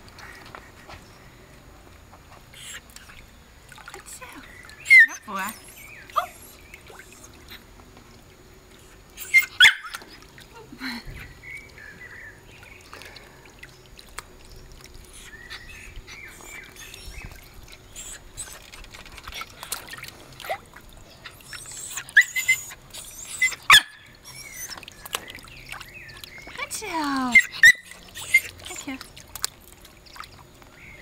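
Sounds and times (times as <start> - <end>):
light splashing of water: 0.0 - 31.0
dog whining: 4.8 - 7.6, 9.2 - 10.0, 15.1 - 18.8, 21.2 - 24.8, 27.3 - 28.8
dog barking in sharp bursts: 9.3 - 10.0, 23.4 - 24.0.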